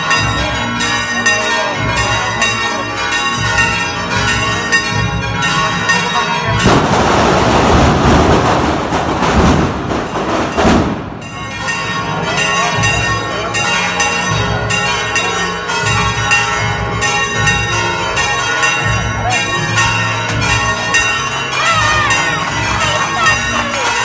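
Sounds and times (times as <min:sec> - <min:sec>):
bells ringing: 0:00.0 - 0:07.6, 0:10.0 - 0:24.0
loud rush of noise: 0:06.6 - 0:11.6.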